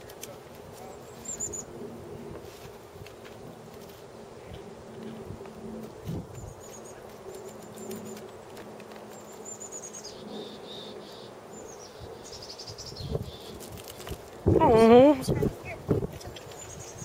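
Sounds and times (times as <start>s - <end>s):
small birds chirping: 0.7s - 1.8s, 6.1s - 17.0s.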